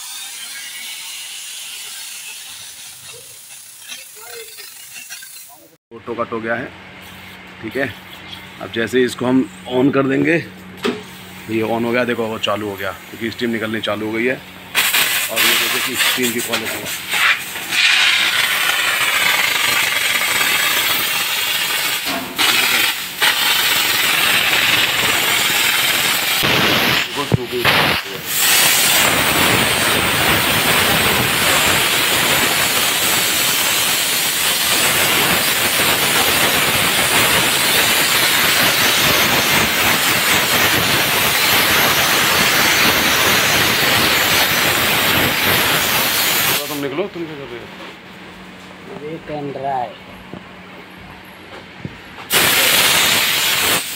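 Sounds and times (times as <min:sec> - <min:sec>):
steam cleaner hissing: 0:00.0 - 0:05.8, 0:13.8 - 0:46.9, 0:52.3 - 0:53.9.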